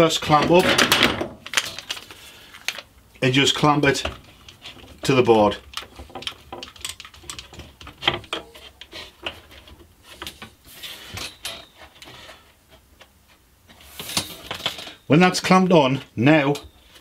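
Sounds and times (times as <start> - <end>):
scraping rustle: 3.8 - 15.0.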